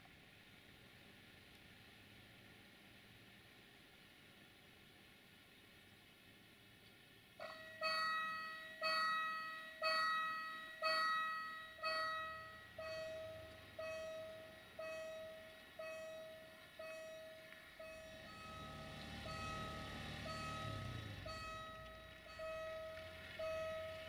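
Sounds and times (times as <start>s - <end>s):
level crossing warning bell ringing: 7.4s - 24.0s.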